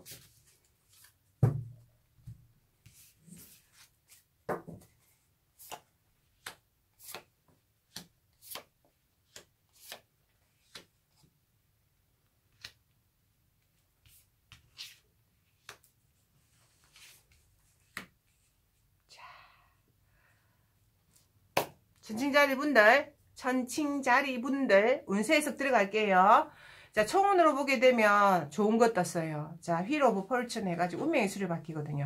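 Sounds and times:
dull thump: 1.4s - 1.8s.

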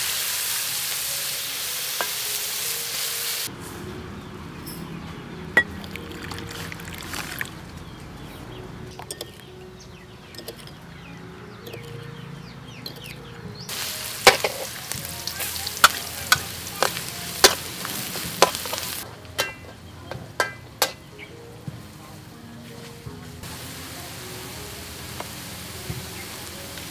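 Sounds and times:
steady hiss: 0.0s - 3.5s, 13.7s - 19.0s, 23.4s - 26.9s
spoon clinking in ceramic bowl: 8.9s - 9.5s, 10.3s - 10.8s.

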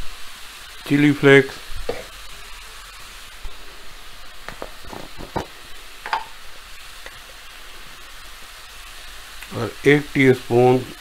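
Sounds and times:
vegetables sizzling in oil: 0.0s - 11.0s
jars and lid clicking: 5.2s - 6.3s.

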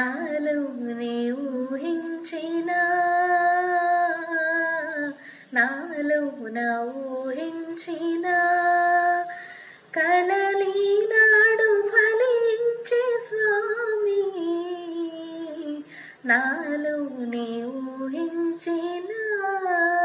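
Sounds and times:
woman singing unaccompanied: 0.0s - 20.0s.

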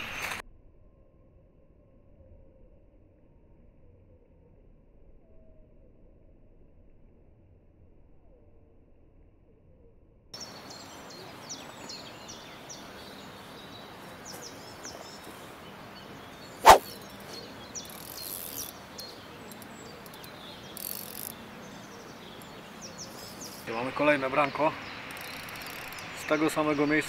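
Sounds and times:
small birds chirping: 10.4s - 27.0s.

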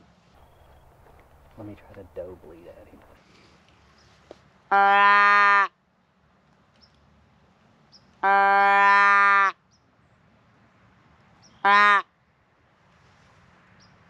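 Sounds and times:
deer call bleat: 4.7s - 5.8s, 8.2s - 9.6s, 11.6s - 12.1s.

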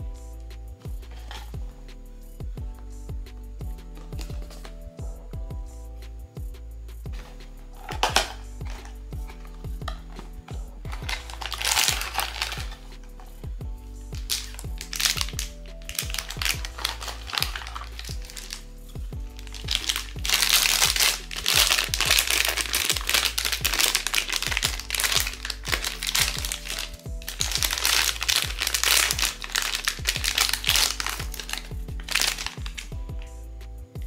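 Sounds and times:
background music with steady beat: 0.0s - 34.0s
packaging crinkling and crackling: 7.2s - 13.2s, 14.2s - 18.6s, 19.4s - 33.0s.

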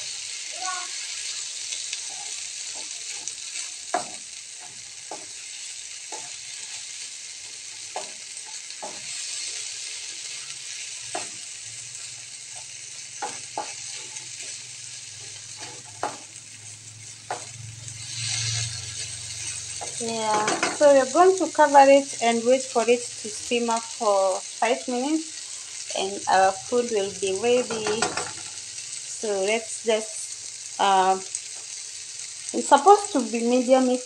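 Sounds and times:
food sizzling in a frying pan: 0.0s - 34.0s
spatula scraping and tapping pan: 1.9s - 11.5s, 12.5s - 20.9s, 27.3s - 28.7s.

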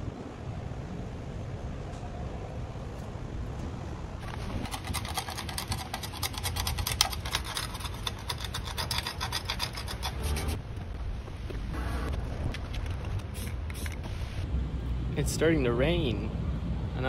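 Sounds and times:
sandpaper rubbing on metal: 4.5s - 10.6s.

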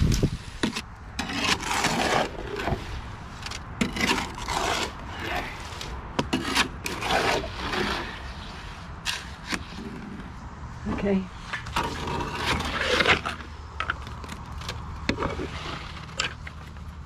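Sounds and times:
tool blade scraping wet concrete: 0.5s - 10.3s, 11.5s - 13.6s, 15.1s - 16.5s.

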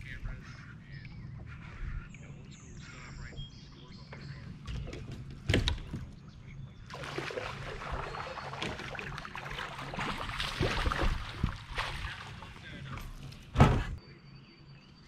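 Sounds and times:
water splashes: 6.8s - 13.2s
water rushing: 6.9s - 12.9s.

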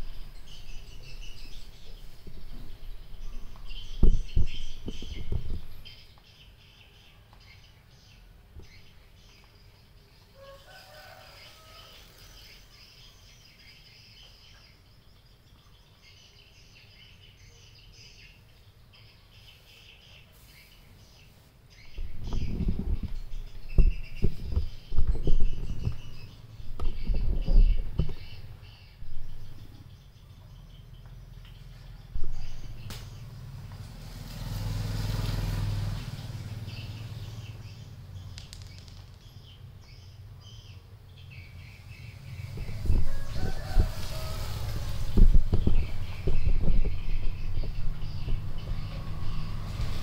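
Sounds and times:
birds chirping: 0.0s - 50.0s
vehicle engine running: 31.0s - 38.8s, 41.1s - 50.0s.

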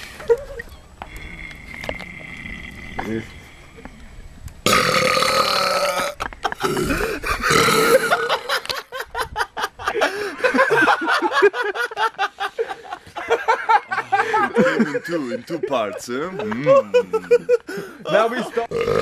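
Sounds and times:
person burping: 4.6s - 8.5s, 18.6s - 19.0s.

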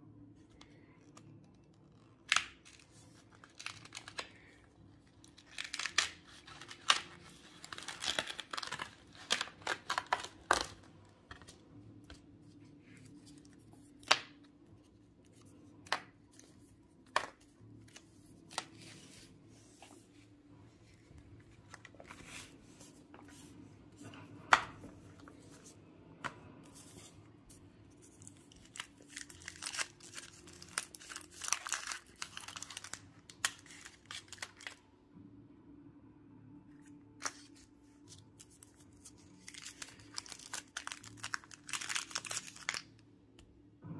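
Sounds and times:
plastic wrapper crinkling: 1.8s - 4.6s, 5.2s - 10.9s, 28.1s - 34.8s, 38.4s - 43.0s
cardboard tearing and crinkling: 5.3s - 10.8s, 28.2s - 34.8s, 39.4s - 42.8s.

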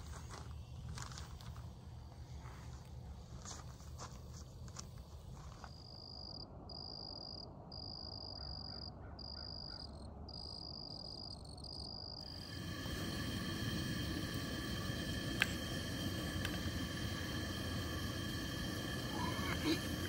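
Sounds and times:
steady hiss: 12.2s - 20.0s.

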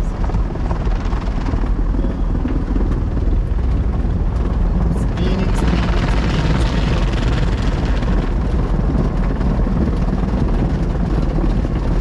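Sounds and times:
car wash machinery rumble: 0.0s - 12.0s
water spraying on car: 0.2s - 11.8s.

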